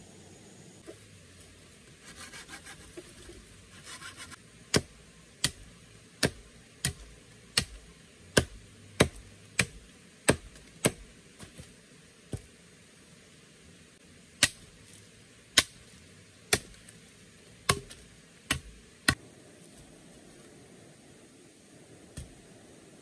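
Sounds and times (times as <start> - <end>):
scraping and rustling: 0.8 - 4.4
machete chopping wood: 4.7 - 11.7, 14.4 - 14.7, 15.6 - 15.8, 16.5 - 16.8, 17.6 - 19.2.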